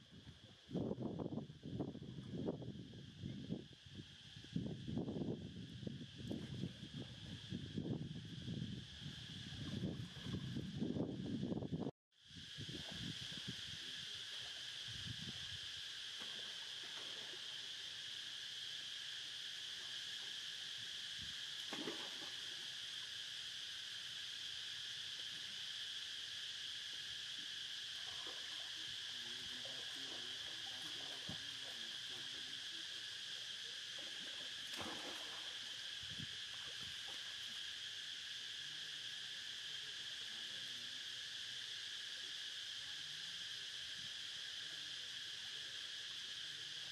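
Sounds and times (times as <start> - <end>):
insect chorus drone: 0.0 - 46.9.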